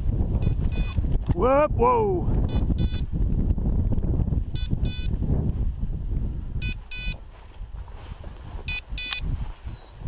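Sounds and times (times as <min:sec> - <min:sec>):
grass brushing microphone: 0:00.0 - 0:01.4, 0:02.3 - 0:10.0
wind rush: 0:00.0 - 0:10.0
electronic collar double beeps: 0:00.4 - 0:01.0, 0:02.5 - 0:03.0, 0:04.6 - 0:05.1, 0:06.6 - 0:07.2.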